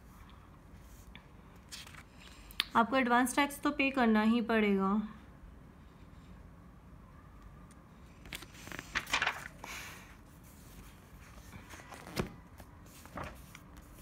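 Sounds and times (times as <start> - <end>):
book pages turning: 1.6 - 2.1, 8.2 - 14.0.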